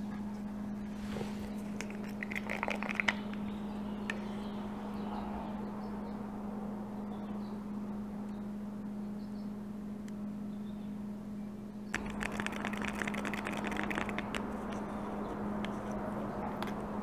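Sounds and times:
steady low hum: 0:00.0 - 0:17.0
plastic cups clicking and tapping: 0:01.7 - 0:03.4, 0:12.0 - 0:15.0.

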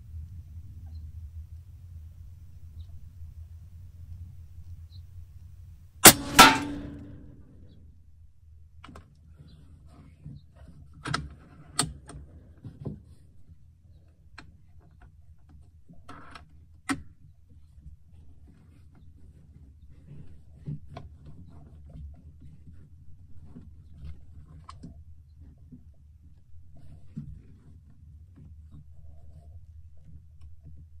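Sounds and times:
air rifle shot: 0:06.0 - 0:07.4
crack with ringing tail: 0:06.0 - 0:07.6.

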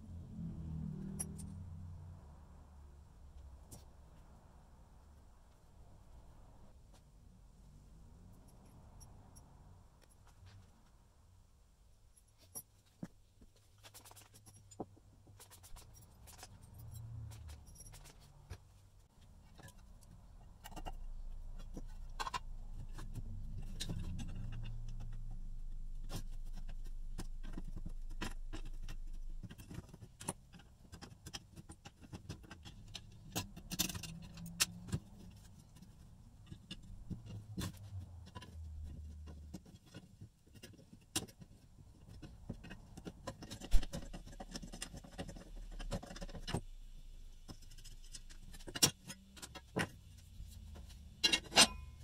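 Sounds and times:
parts clicking and scraping: 0:01.0 - 0:01.8, 0:12.1 - 0:52.0.

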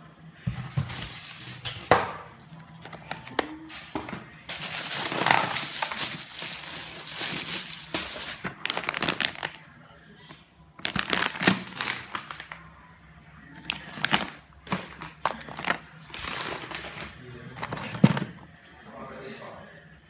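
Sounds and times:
plastic bags crinkling: 0:04.5 - 0:09.6, 0:10.8 - 0:12.6, 0:13.7 - 0:18.1.

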